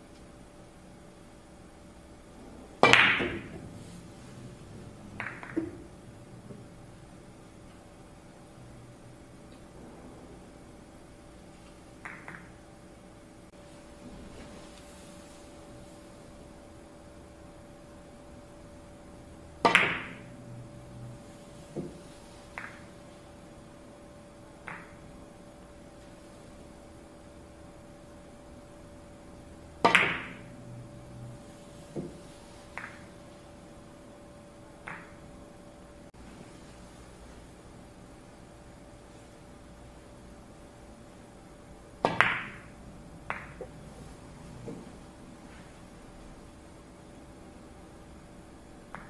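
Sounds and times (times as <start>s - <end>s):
billiard balls clicking: 2.8s - 3.7s, 5.0s - 6.7s, 11.6s - 12.7s, 19.6s - 23.4s, 24.6s - 25.2s, 29.6s - 30.5s, 31.5s - 33.4s, 34.8s - 35.3s, 42.0s - 43.9s
cue tip crack: 2.8s - 3.9s, 5.1s - 5.9s, 11.6s - 12.6s, 19.6s - 20.3s, 21.6s - 23.0s, 24.6s - 25.0s, 29.8s - 30.5s, 31.7s - 33.2s, 34.8s - 35.2s, 42.0s - 43.8s.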